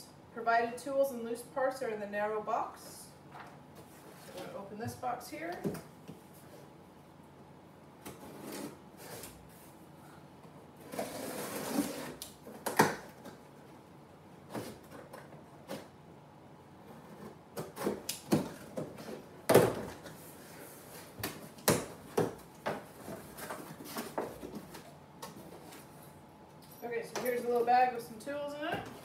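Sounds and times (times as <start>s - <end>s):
cardboard tearing: 10.8s - 12.4s.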